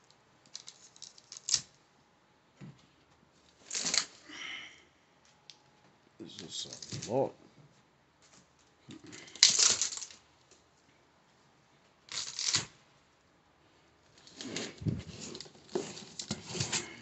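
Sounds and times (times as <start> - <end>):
plastic spools clattering and rustling: 14.1 - 17.0.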